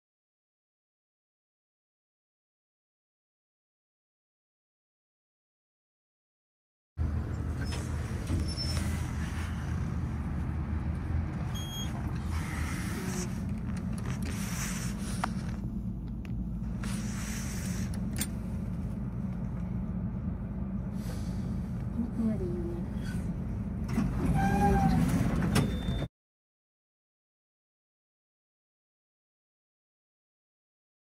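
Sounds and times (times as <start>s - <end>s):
elevator rumble: 7.0s - 26.1s.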